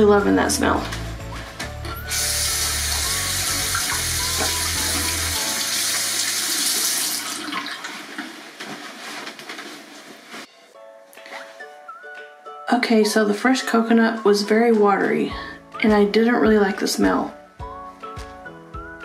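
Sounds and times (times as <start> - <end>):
faucet running: 2.0 - 8.0.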